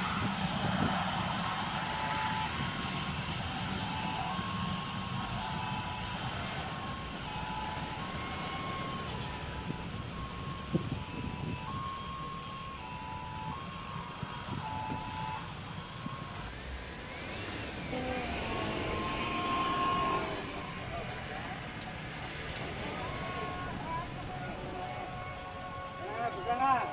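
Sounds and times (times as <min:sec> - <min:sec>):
vehicle engines rumbling: 0:00.0 - 0:26.9
rising whine: 0:16.0 - 0:26.4.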